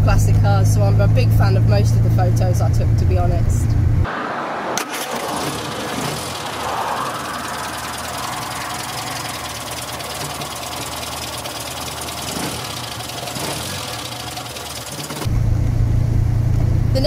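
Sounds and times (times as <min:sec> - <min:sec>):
car engine idling: 0:04.8 - 0:17.0.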